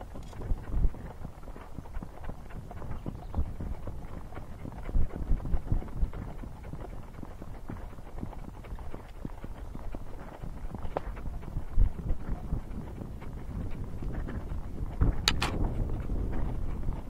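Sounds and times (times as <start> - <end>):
horse hoofbeats on dirt: 0.0 - 17.0.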